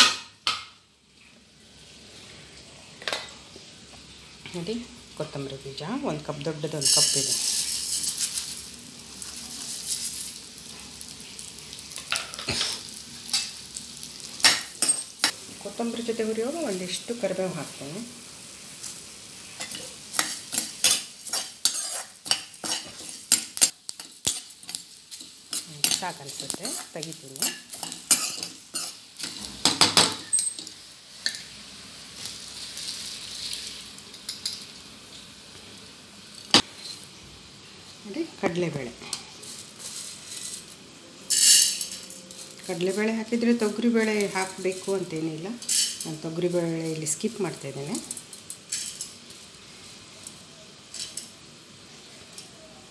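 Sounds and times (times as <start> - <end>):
soft sizzle: 0.0 - 52.9
spatula scraping a wok: 6.8 - 8.6, 12.2 - 15.4, 18.6 - 31.5, 36.6 - 37.1, 39.1 - 43.2
seeds rattling into pan: 6.8 - 10.5, 32.1 - 34.8, 39.4 - 51.4.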